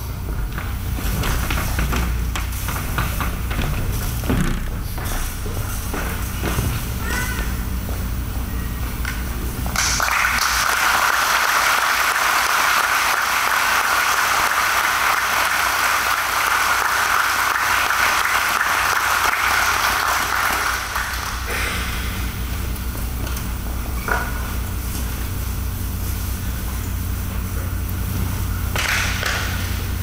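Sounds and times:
audience applauding: 9.0s - 22.2s.

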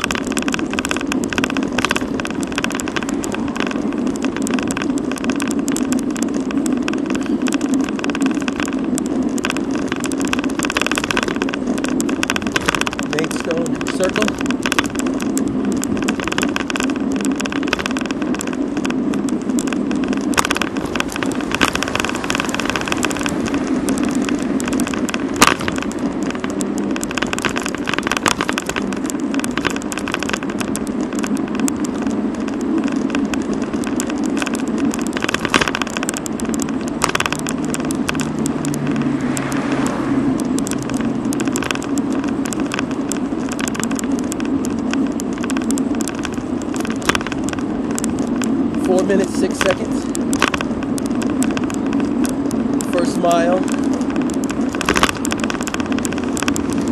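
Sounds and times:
bicycle road and wind rumble: 0.0s - 56.9s
rattling clicks of bicycle: 0.0s - 56.9s.

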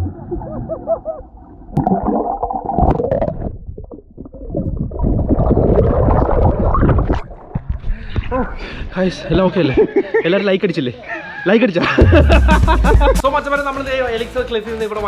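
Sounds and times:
underwater bubbles gurgling: 0.0s - 7.7s.

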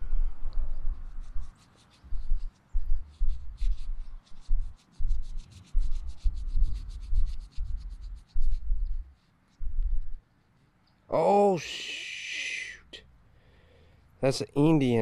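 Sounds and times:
fingers rubbing coin: 0.7s - 10.2s.

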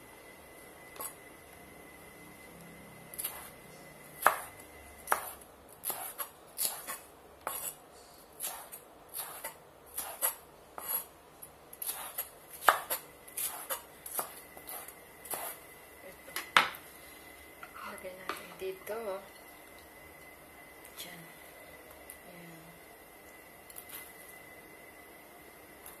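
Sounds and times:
knife chopping on wooden board: 4.2s - 4.5s, 5.1s - 7.8s, 11.8s - 15.6s.

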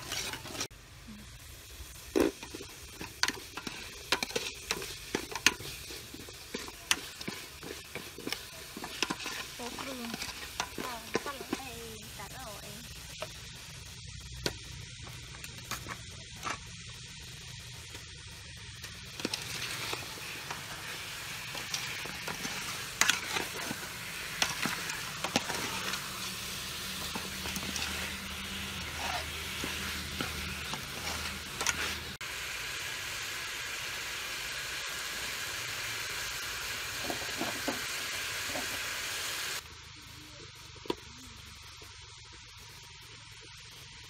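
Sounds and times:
metal spoon stirring and scraping: 0.0s - 0.7s, 1.8s - 13.3s, 18.8s - 32.2s
food sizzling in a pot: 0.0s - 44.0s.

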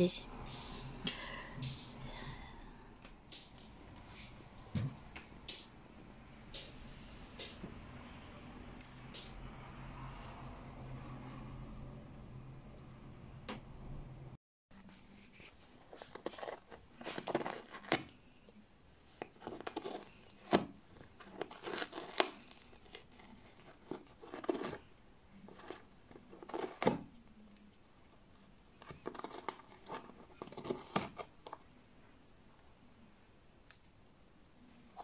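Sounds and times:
paper crinkling and tearing: 14.9s - 18.3s, 19.2s - 27.1s, 28.9s - 31.6s.

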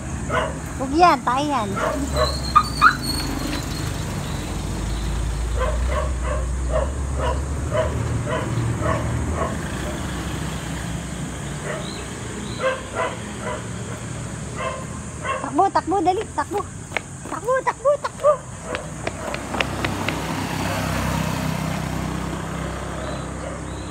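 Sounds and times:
dog yipping: 1.8s - 3.6s, 5.6s - 9.6s, 11.6s - 13.7s, 14.6s - 15.6s.

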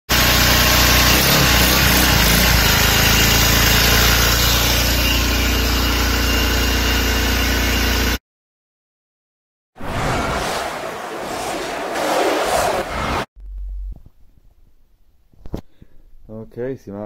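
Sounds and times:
small engine running: 0.1s - 8.2s.

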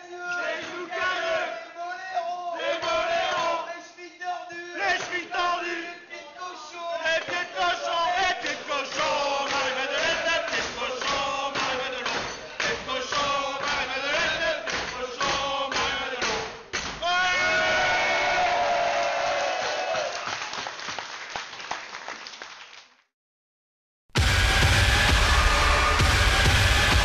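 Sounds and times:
men chanting and singing: 0.0s - 17.7s
music: 24.2s - 27.0s.

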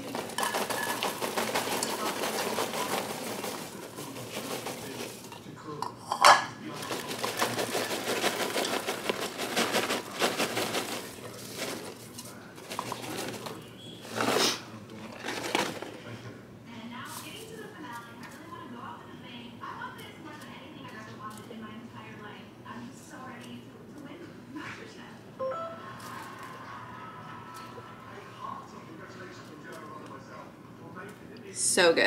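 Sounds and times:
paper bag crinkling: 0.0s - 5.3s, 6.7s - 16.1s
popcorn pouring into bowls: 0.0s - 5.8s, 6.6s - 16.2s.

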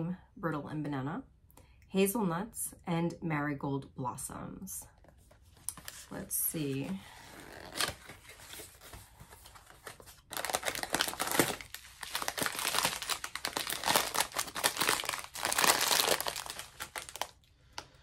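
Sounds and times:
plastic bag crinkling: 7.4s - 17.5s.

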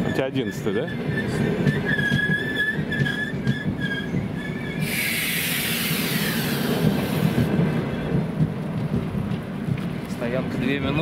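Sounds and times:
high-pitched wheel squeals: 0.0s - 6.8s
train wheels rumbling on rail: 0.0s - 11.0s
loud hiss: 4.8s - 7.5s.

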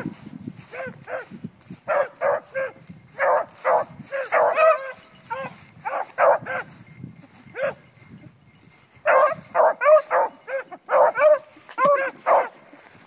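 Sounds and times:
beagles baying: 0.7s - 1.3s, 1.9s - 6.8s, 9.0s - 13.0s.

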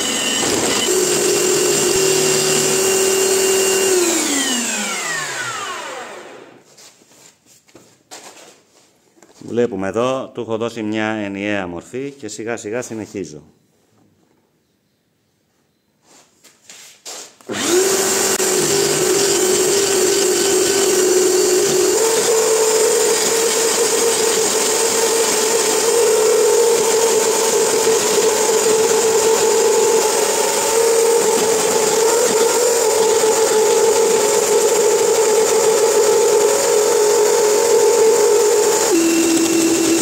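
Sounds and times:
lathe motor whine: 0.0s - 6.6s, 17.5s - 40.0s
gouge scraping spinning wood: 17.5s - 40.0s.

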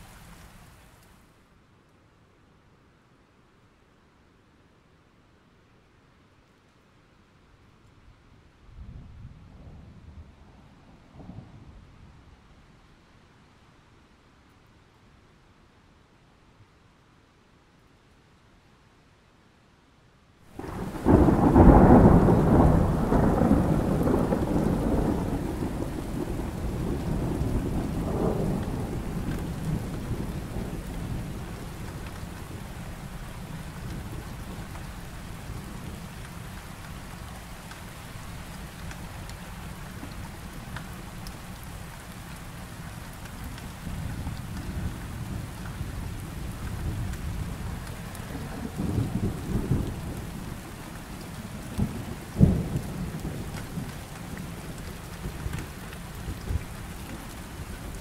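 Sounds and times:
falling rain: 0.0s - 58.0s
thunder rumbling: 20.6s - 58.0s.

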